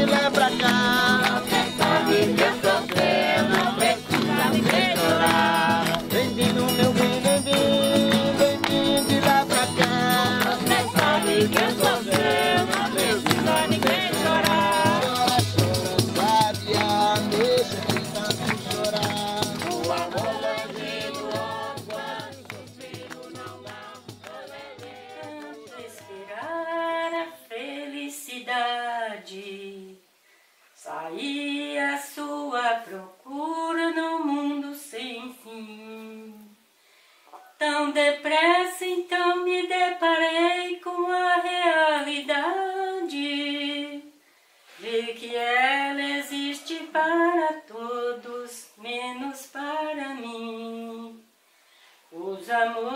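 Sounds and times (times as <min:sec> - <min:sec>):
shaken percussion: 0:00.0 - 0:26.6
group of voices singing: 0:00.0 - 0:29.8, 0:44.8 - 0:48.6.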